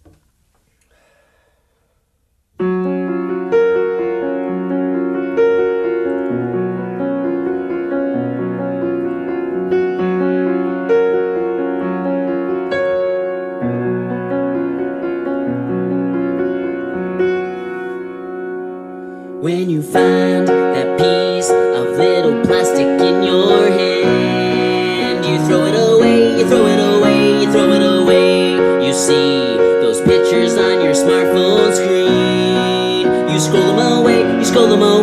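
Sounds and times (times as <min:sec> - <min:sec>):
slow piano chords: 0:02.6 - 0:35.0.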